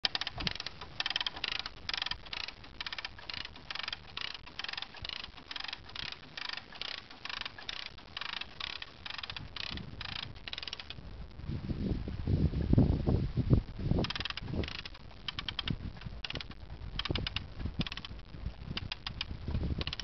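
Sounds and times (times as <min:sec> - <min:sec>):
ratchet winch clicking: 0:00.0 - 0:11.0, 0:14.0 - 0:20.0.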